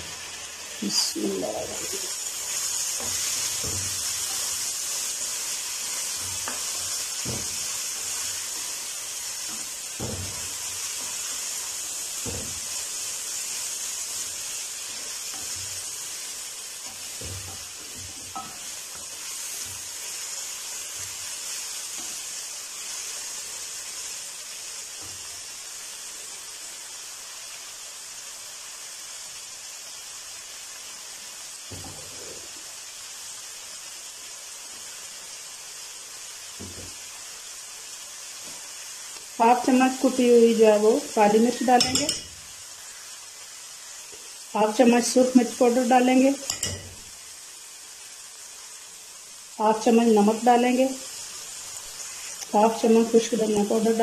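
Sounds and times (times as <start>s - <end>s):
vegetables sizzling in a pan: 0.0s - 54.0s
wooden spatula scraping a pan: 1.8s - 22.2s.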